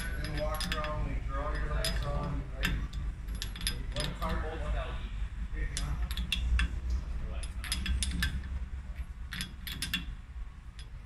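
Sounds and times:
wrench clicking on metal fitting: 0.0 - 4.3, 5.8 - 6.8, 7.4 - 8.6, 9.3 - 10.1
low steady rumble: 0.0 - 11.0.

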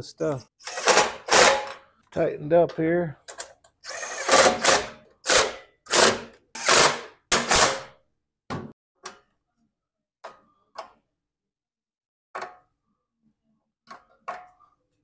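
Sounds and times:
impact driver bursts: 0.6 - 1.7, 3.9 - 7.9.

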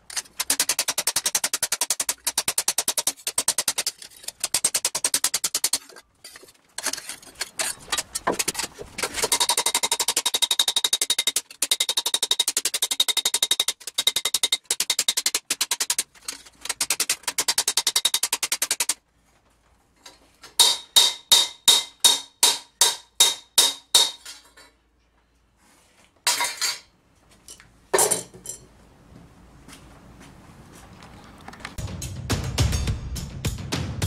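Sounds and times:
hammer blows ringing on metal: 20.6 - 24.2.

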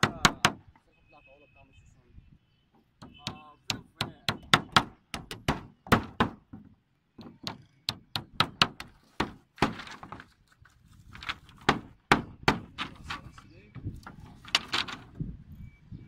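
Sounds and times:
hammer striking nails into wood: 0.0 - 0.6, 3.0 - 9.8, 11.6 - 12.8
wooden slats clattering: 2.8 - 15.2.

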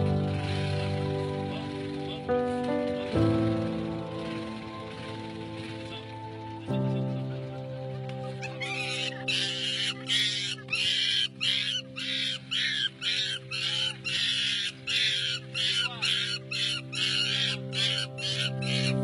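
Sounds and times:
background music held chord: 0.0 - 19.0
young ape shrieking: 8.4 - 19.0.

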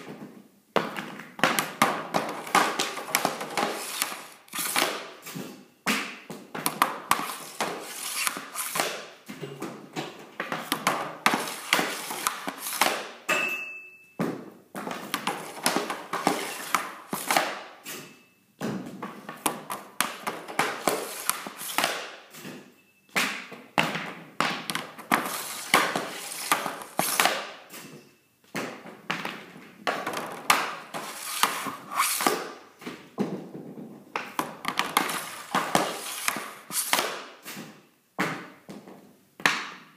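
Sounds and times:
stick and puck clacking on board: 0.8 - 13.4, 14.2 - 22.2, 23.2 - 27.9, 28.6 - 38.8
pucks slamming into net: 0.8 - 13.6, 14.2 - 22.6, 23.2 - 38.8
short metallic ping: 13.3 - 14.2.

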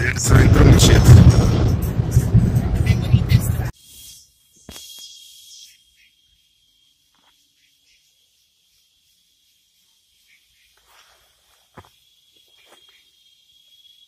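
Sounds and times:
high-pitched insect drone: 3.7 - 14.0.

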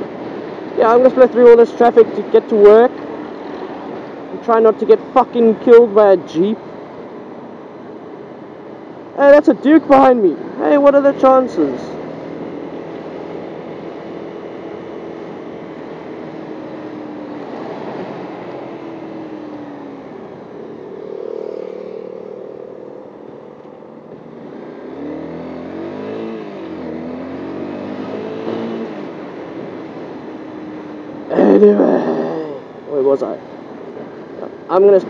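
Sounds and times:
traffic noise: 0.0 - 35.0
wind: 0.0 - 35.0
motorcycle engine: 11.9 - 34.4.

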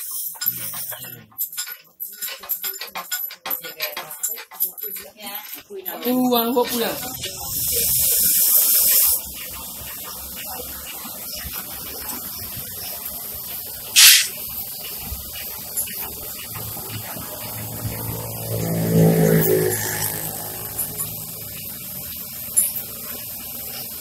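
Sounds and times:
gas hissing: 7.2 - 9.8, 11.9 - 24.0.

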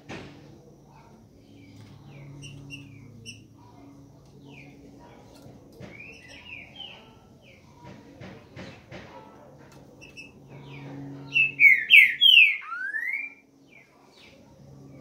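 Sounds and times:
faint low hum: 0.0 - 15.0
bird chirping: 5.9 - 7.6, 10.0 - 14.4.

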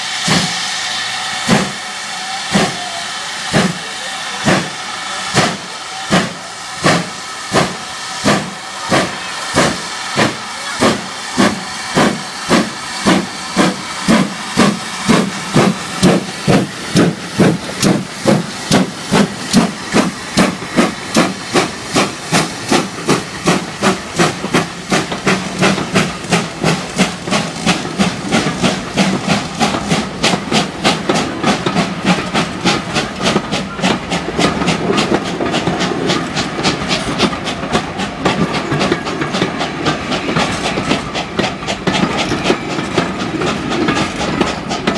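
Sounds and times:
steam locomotive exhaust chuffs: 0.0 - 44.9
coaches rumbling and clattering: 13.6 - 44.9.

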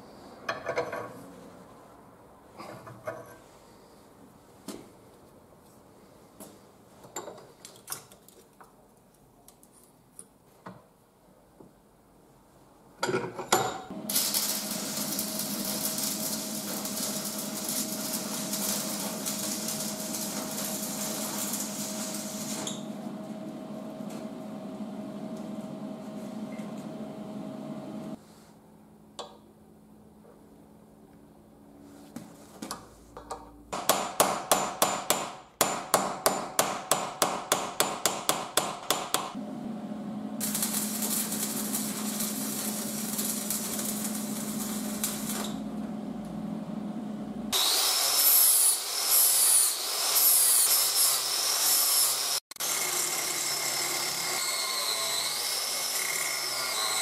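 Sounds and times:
welding arc crackling hiss: 13.9 - 23.2, 40.4 - 45.7, 47.5 - 52.8.

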